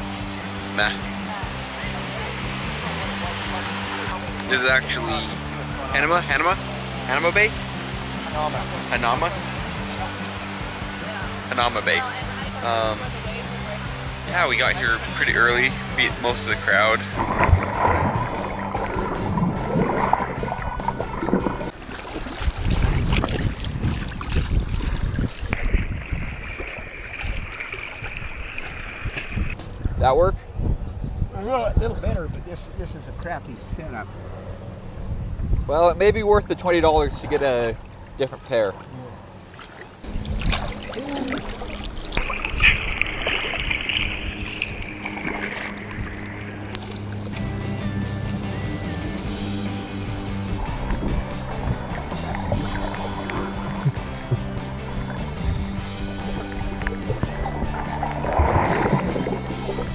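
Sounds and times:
water sloshing and splashing: 0:17.1 - 0:29.9, 0:37.0 - 0:47.6, 0:49.3 - 0:59.9.

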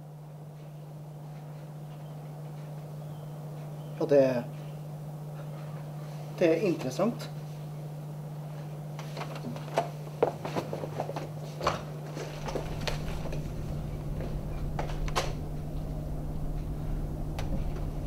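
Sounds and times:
low hum: 0:12.2 - 0:18.0.

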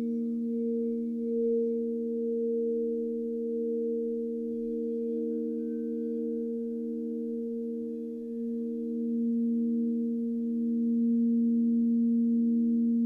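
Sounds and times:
crystal singing bowls ringing: 0:00.0 - 0:13.0.

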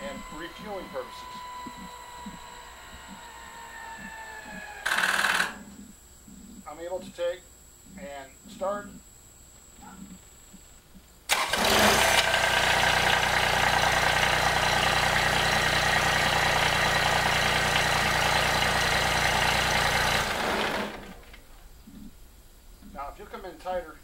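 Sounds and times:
tractor diesel engine starting and idling: 0:00.0 - 0:02.0, 0:11.3 - 0:21.4.

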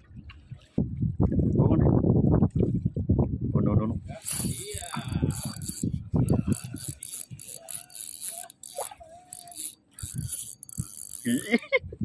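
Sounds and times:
wind buffeting microphone: 0:00.0 - 0:07.8, 0:09.6 - 0:12.0
fishing reel gears clicking: 0:04.2 - 0:11.6.

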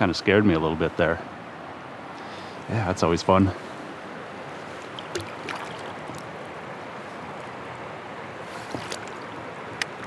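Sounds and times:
river water rushing: 0:00.0 - 0:10.0
small splashes and drips: 0:04.5 - 0:06.4, 0:08.5 - 0:10.0.

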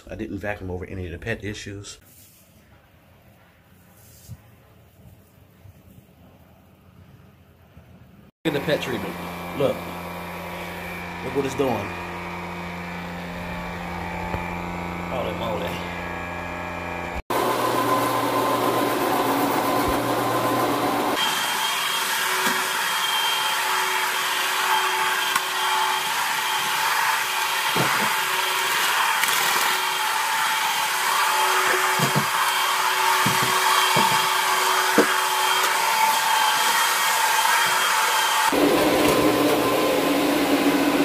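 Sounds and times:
carpet cleaning machine motor whine: 0:08.5 - 0:41.0.

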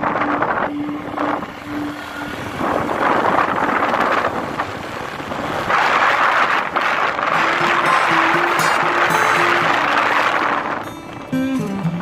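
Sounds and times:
motorbike engine running: 0:00.0 - 0:12.0
pulsing hum: 0:00.0 - 0:12.0
wind rushing over microphone: 0:00.0 - 0:12.0.

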